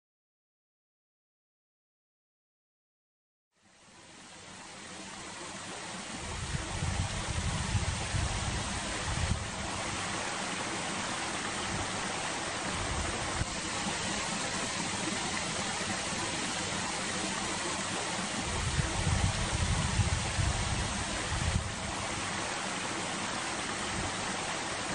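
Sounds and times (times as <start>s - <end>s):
wind blowing on microphone: 6.2s - 10.2s, 11.5s - 14.5s, 18.3s - 22.5s.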